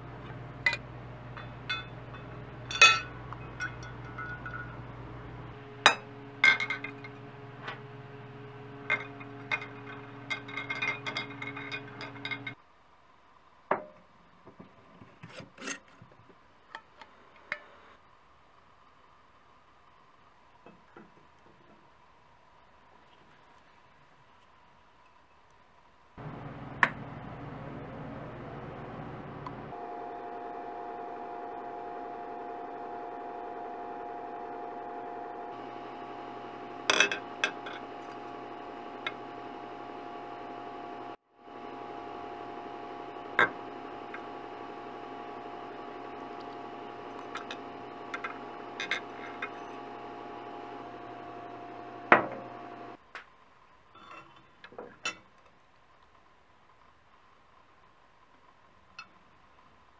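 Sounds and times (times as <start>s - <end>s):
steady hum with tones: 0.0s - 14.8s, 21.9s - 53.9s
metal clinking on glass: 1.4s - 4.8s, 8.9s - 12.6s.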